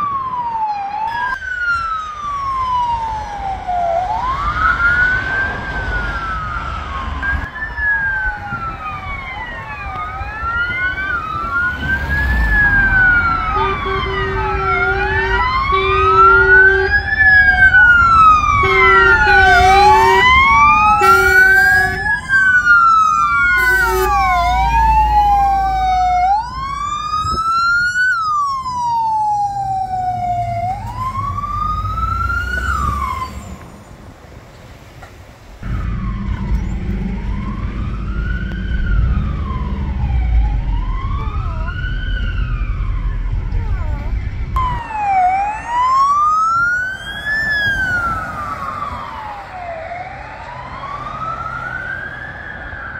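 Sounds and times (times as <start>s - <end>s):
wailing sirens: 0.0s - 34.4s, 35.6s - 52.9s
heavy truck engines rumbling: 0.0s - 52.9s
short horn blasts: 18.6s - 20.4s, 21.0s - 22.1s, 23.6s - 24.4s.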